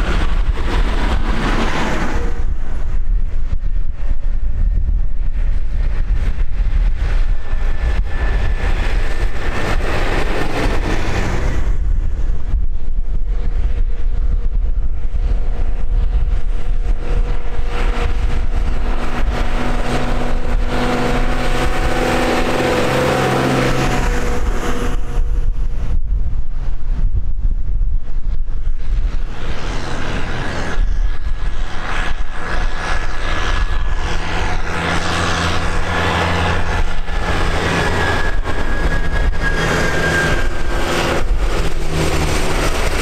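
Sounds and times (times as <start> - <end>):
tractor engines passing: 0.0 - 3.3, 6.0 - 12.3, 15.4 - 25.5, 29.0 - 43.0
wind rumbling on microphone: 0.0 - 43.0.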